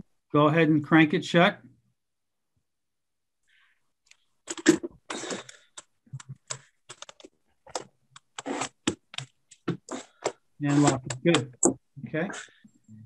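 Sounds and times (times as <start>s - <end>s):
window crank clicks and scrapes: 6.4s - 11.8s.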